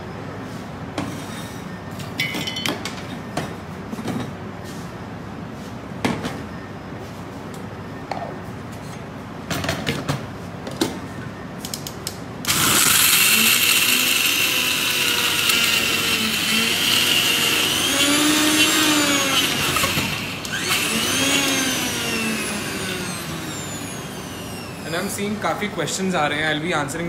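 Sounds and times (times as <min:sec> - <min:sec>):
mixer grinder motor grinding: 0:12.5 - 0:25.2.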